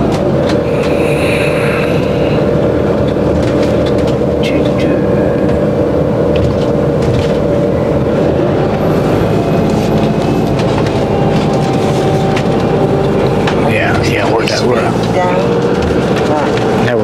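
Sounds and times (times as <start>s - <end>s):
vehicle engine drone: 0.0s - 17.0s.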